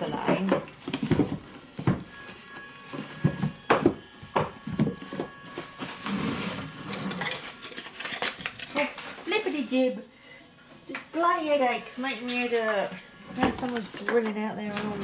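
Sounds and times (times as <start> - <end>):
items knocking on worktop: 0.0 - 2.1, 3.2 - 5.7
paper rustling: 4.7 - 9.9.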